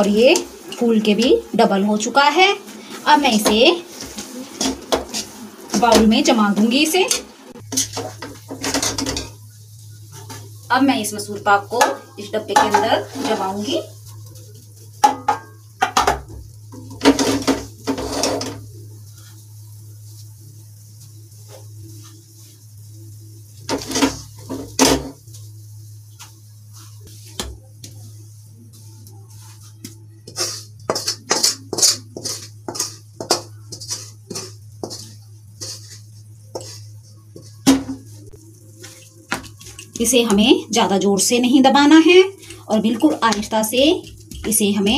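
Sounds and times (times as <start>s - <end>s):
metal spatula scraping metal pan: 2.7s - 9.4s, 11.7s - 13.9s, 16.8s - 18.6s, 23.7s - 25.2s, 29.3s - 38.0s.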